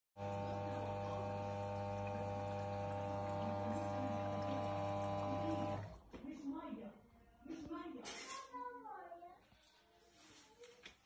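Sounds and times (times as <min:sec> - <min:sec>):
washing machine hum and whine: 0:00.2 - 0:06.0.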